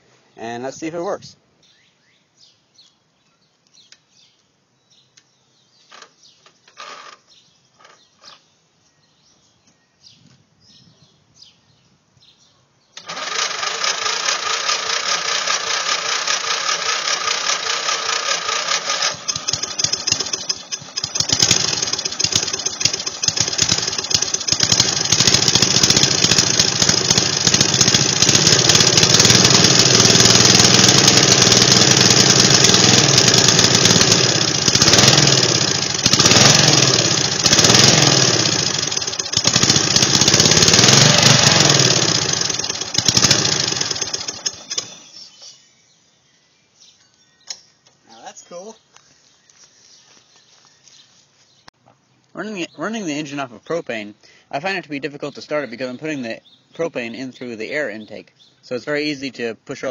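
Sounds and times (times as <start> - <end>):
mower engine running: 6.7 - 7.2, 13.0 - 45.1.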